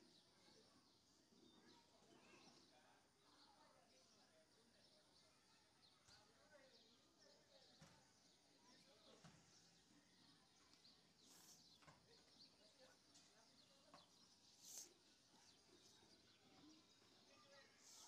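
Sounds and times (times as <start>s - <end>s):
soft brief hisses: 11.2s - 11.7s, 14.6s - 15.0s.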